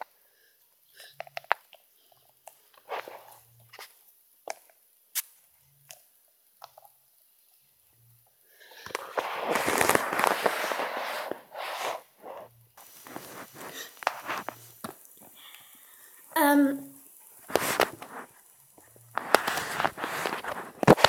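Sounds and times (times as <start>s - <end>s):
rustling and crackling on microphone: 1.0s - 5.3s, 8.7s - 21.0s.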